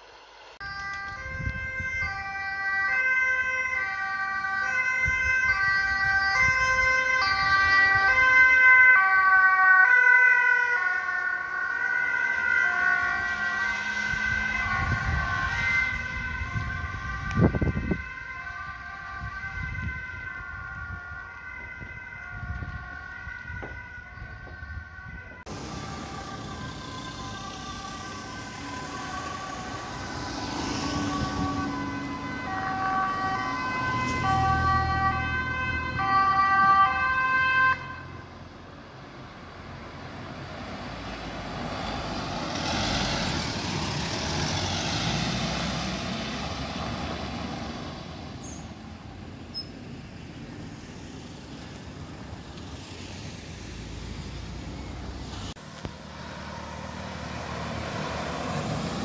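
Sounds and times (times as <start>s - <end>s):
traffic noise: 0.0s - 59.0s
two-tone siren: 0.6s - 38.6s, 40.9s - 49.8s, 53.9s - 55.2s
van driving past: 25.5s - 36.3s, 39.3s - 48.3s, 52.7s - 59.0s.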